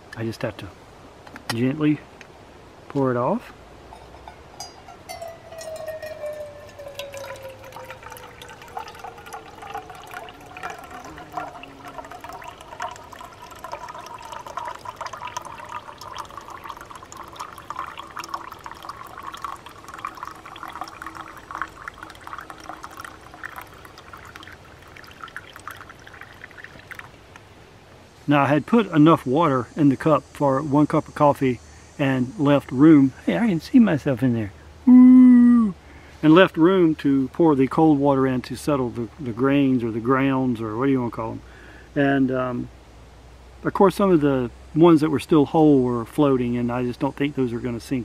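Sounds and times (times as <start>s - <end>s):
coffee pouring into metal mug: 4.0s - 27.1s.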